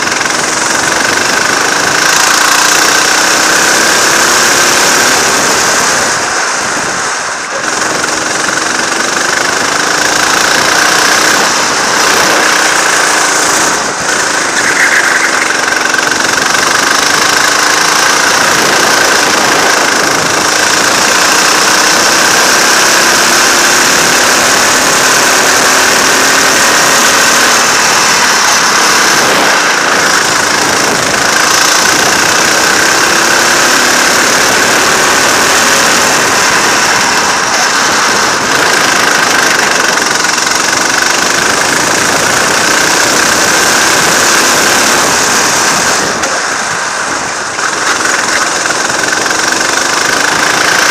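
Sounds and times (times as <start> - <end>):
go-kart engine revving: 0.0 - 50.9.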